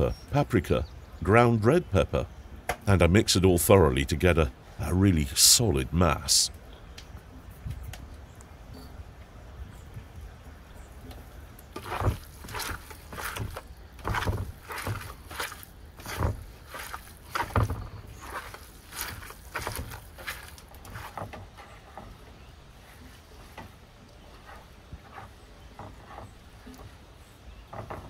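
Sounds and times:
hands kneading wet meat mix: 11.6 - 21.2
dull thumps: 11.7 - 22.4, 27.6 - 28.0.

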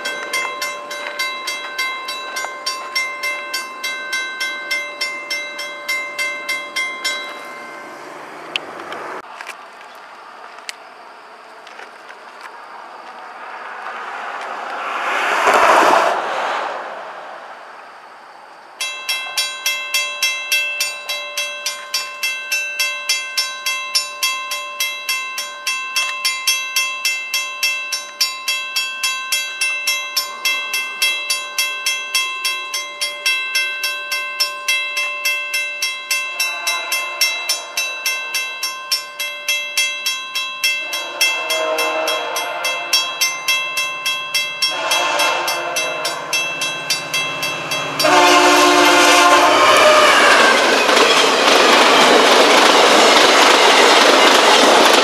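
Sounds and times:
railway crossing bell ringing: 0.0 - 8.6, 18.8 - 55.0
train horn blasts: 36.2 - 38.2, 40.7 - 43.3, 44.6 - 50.7.

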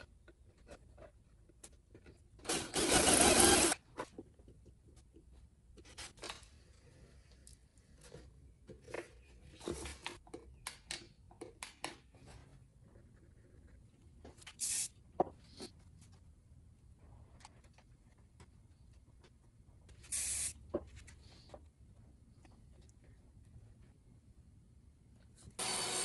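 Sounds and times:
cordless drill driving a screw: 2.5 - 3.8, 25.6 - 26.0.

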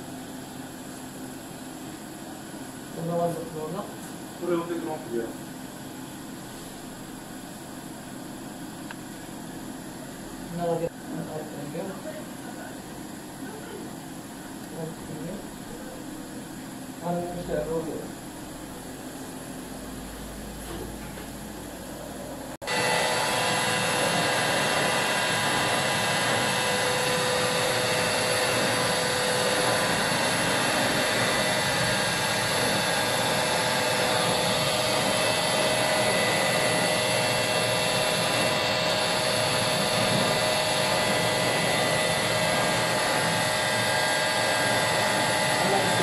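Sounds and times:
laser cutter whirring: 0.0 - 46.0.

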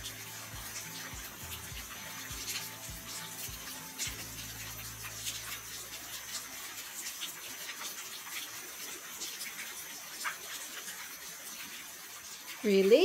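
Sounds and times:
water pouring into basins: 0.0 - 13.0.

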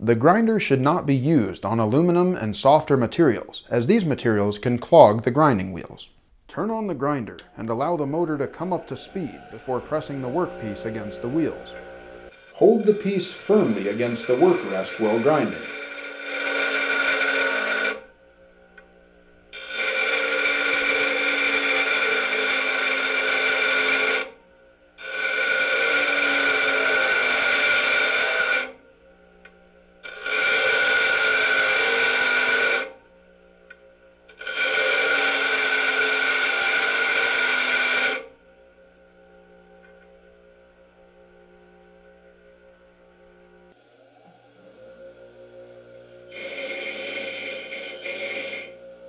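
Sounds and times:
grinder wheel grinding metal rod: 7.4 - 18.9, 19.5 - 24.4, 25.0 - 28.8, 29.4 - 33.0, 33.7 - 38.3, 39.7 - 49.0
grinder motor humming: 7.4 - 24.4, 25.0 - 49.0.

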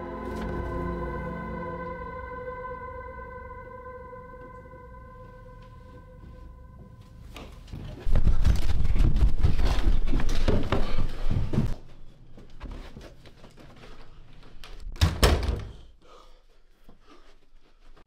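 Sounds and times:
door thump and rattle: 15.0 - 15.8.

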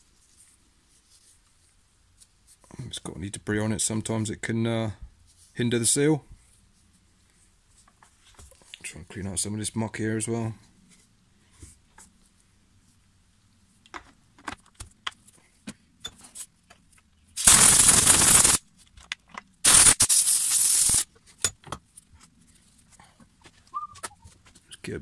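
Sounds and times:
compressed air blowgun hissing: 17.4 - 18.6, 19.6 - 21.1.

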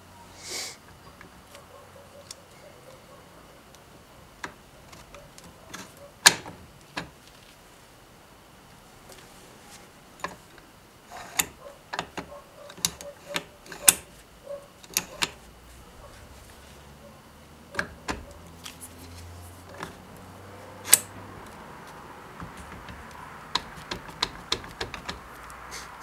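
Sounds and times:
metallic clicks of steering wheel hub: 22.4 - 25.7.

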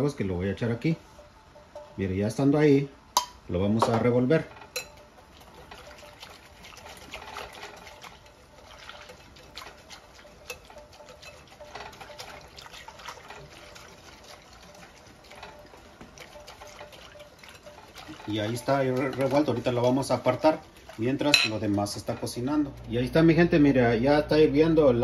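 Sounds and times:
whisk wires clicking on glass: 3.1 - 8.6, 9.4 - 13.8
whisk swishing in water: 3.8 - 23.5.

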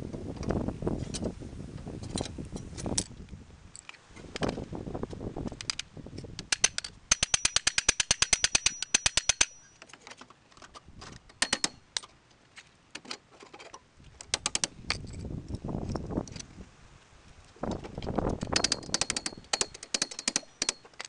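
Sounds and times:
hand tools clicking on metal: 5.5 - 12.1, 13.0 - 16.5, 18.0 - 21.0.

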